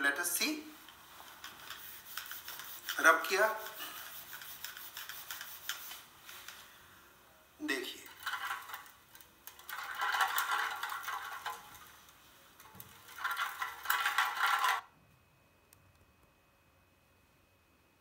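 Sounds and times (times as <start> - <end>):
metal can rolling on marble: 8.0 - 14.9.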